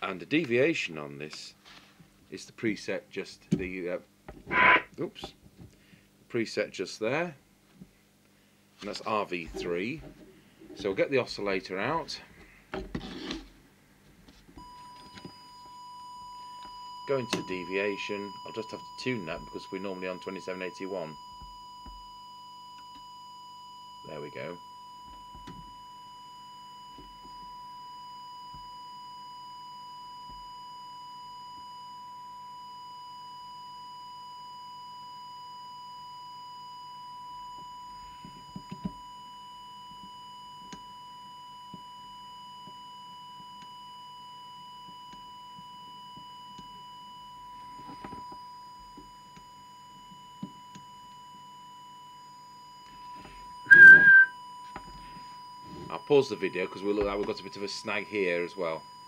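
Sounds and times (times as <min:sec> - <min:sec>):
steady test tone: 0:53.1 - 0:54.4.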